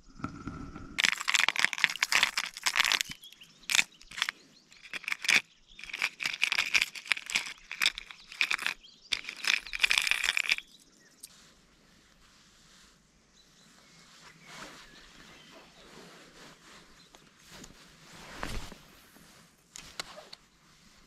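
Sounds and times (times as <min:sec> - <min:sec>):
crunching and rustling: 0:01.0 - 0:11.4.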